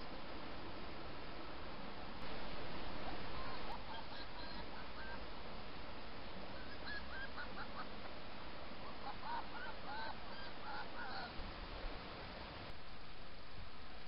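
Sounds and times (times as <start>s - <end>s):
fox yelping: 3.1s - 5.2s, 6.6s - 7.9s, 8.8s - 11.4s.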